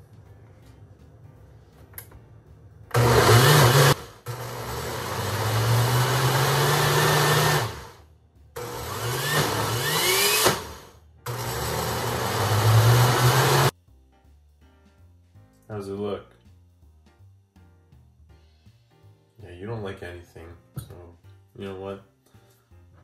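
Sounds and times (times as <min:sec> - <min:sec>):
blender motor running: 0:02.9 - 0:08.0, 0:08.6 - 0:13.7.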